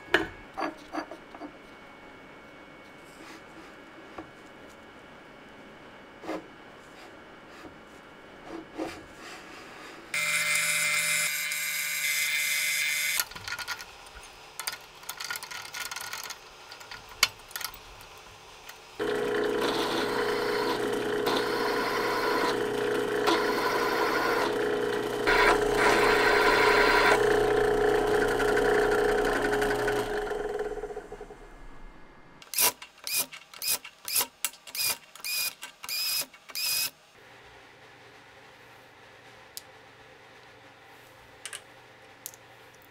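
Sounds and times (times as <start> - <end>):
machine high whine: 10.2 - 13.2, 19.0 - 32.3
drill press drilling: 19.0 - 31.1.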